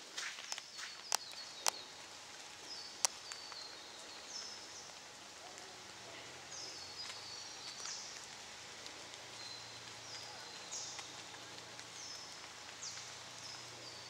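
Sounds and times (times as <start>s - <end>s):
sharp clicks: 0.5s - 1.8s.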